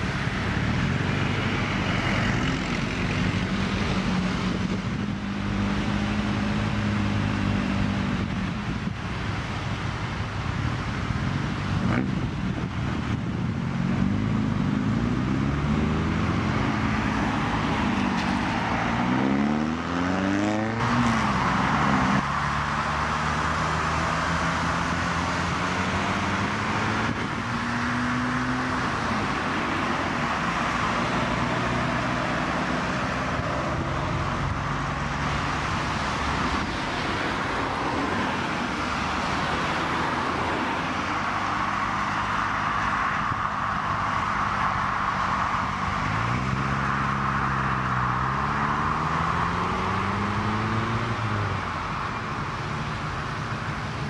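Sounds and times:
cars driving past: 0.0 - 54.0
engine revving: 13.8 - 36.8, 46.0 - 51.5.

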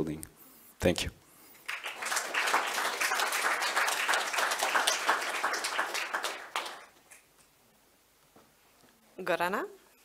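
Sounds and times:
audience applauding: 1.6 - 7.2.

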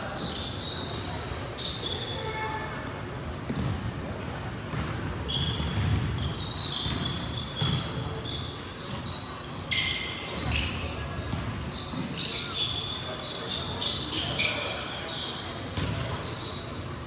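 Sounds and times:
sneaker squeaks: 0.0 - 17.0
basketball bouncing on hardwood: 3.5 - 3.8, 4.7 - 7.9.

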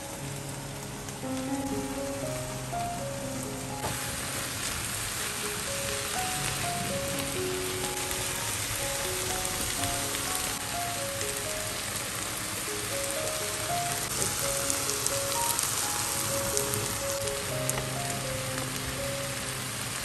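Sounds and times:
food sizzling in a pan: 0.0 - 20.0
soft slow background music: 0.0 - 20.0.

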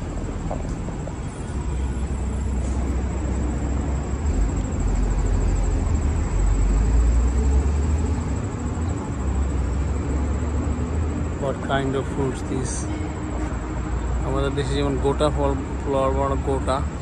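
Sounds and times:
passing vehicles rumble: 0.0 - 17.0.

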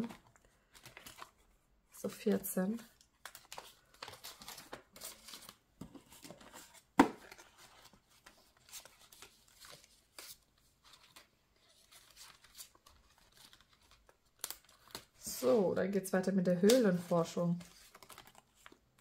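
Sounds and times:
paper rustling: 0.0 - 1.5, 3.2 - 15.5, 16.6 - 19.0.

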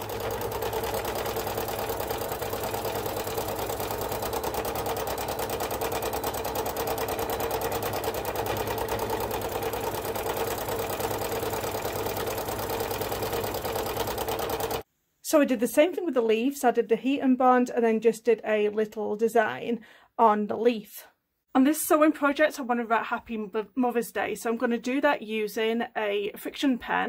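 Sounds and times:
sewing machine running fast: 0.0 - 14.8.

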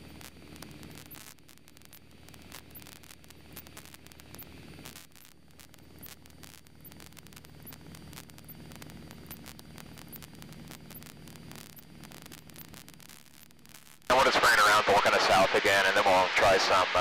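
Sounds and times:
intercom static hiss: 0.0 - 17.0
aircraft engine droning: 14.1 - 17.0.

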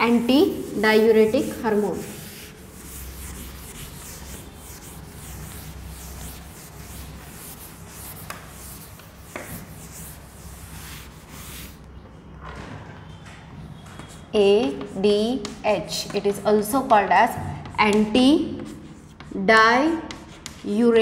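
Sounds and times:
pen scratching while writing: 0.1 - 11.7.

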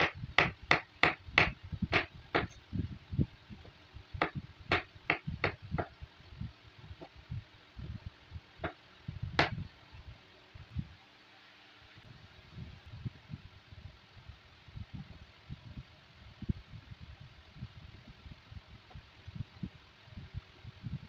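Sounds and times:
knife chopping on wooden board: 0.0 - 2.5, 4.2 - 5.6.

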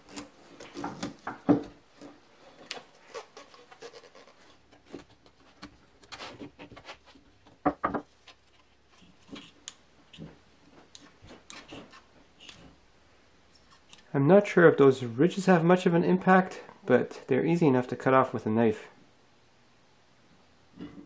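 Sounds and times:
rubber rubbing and handling: 0.0 - 12.8.

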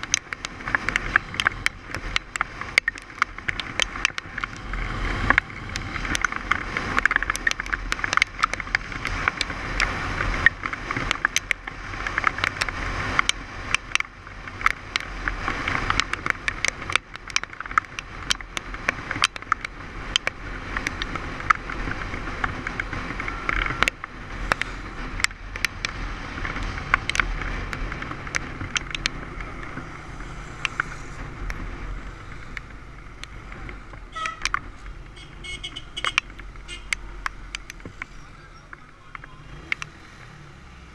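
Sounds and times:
sharp clicks and knocks: 0.0 - 40.1
bike tyres hissing on wet road: 0.5 - 16.9, 19.8 - 34.0.

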